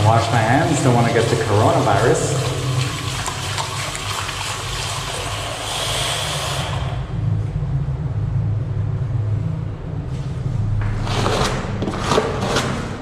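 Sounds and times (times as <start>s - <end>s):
vehicle engine running: 6.9s - 13.0s.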